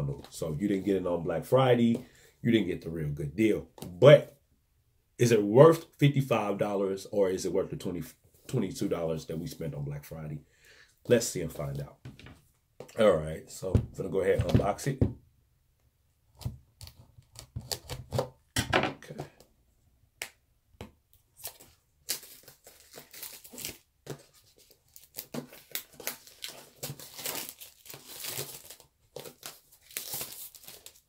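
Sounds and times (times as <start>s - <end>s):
cardboard tearing and crinkling: 21.4s - 31.0s.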